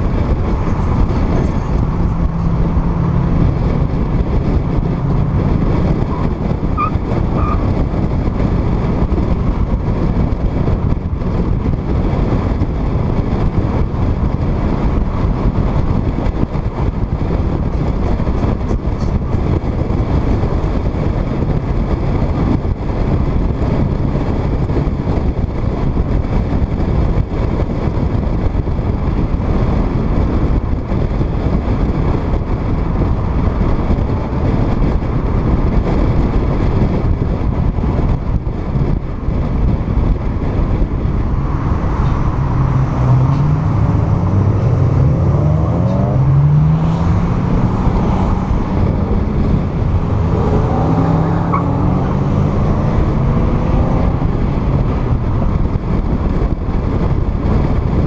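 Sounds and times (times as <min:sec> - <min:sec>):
car engine accelerating: 0:00.0 - 0:58.0
wind and road noise: 0:00.0 - 0:58.0.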